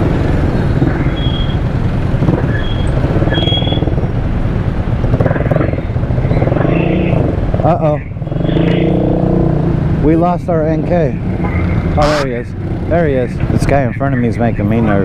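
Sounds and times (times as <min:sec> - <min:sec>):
motorcycle engine running: 0:00.0 - 0:12.0
wind and road noise: 0:00.0 - 0:15.0
short high beeps: 0:00.6 - 0:01.6, 0:02.4 - 0:03.8.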